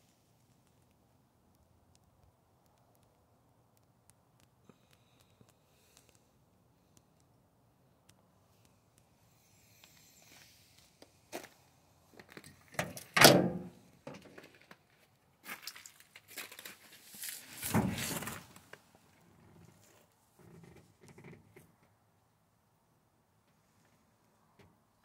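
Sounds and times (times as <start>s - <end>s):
loud thunk: 13.2s - 13.7s.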